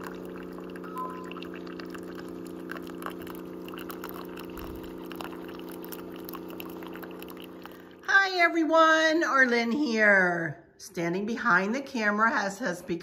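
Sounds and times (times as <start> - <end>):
coffee streaming into mug: 0.0 - 8.1
coffee maker pump hum: 0.0 - 9.8.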